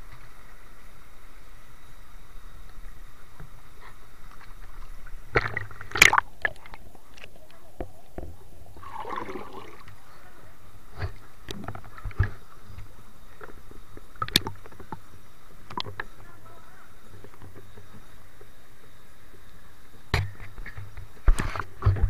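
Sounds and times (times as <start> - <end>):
underwater clicks and knocks: 4.3 - 8.9, 11.0 - 15.0, 15.6 - 16.1, 20.1 - 22.0
watery burst: 8.6 - 12.4.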